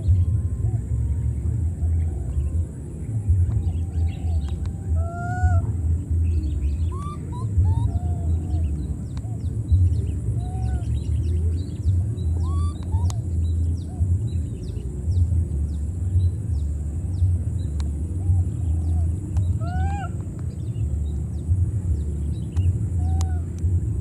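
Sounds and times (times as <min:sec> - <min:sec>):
wind rumble on microphone: 0:00.0 - 0:24.0
whistled animal calls: 0:04.9 - 0:05.8, 0:06.7 - 0:09.5, 0:10.2 - 0:14.0, 0:18.4 - 0:20.2, 0:22.6 - 0:23.6.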